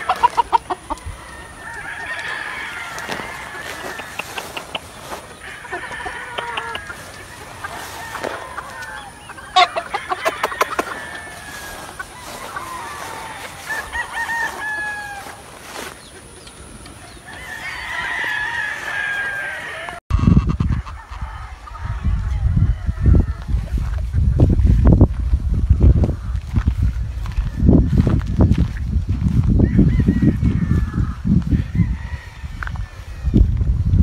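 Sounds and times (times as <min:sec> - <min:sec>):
rooster clucking: 0:00.0 - 0:24.8
roosters crowing: 0:00.0 - 0:33.7.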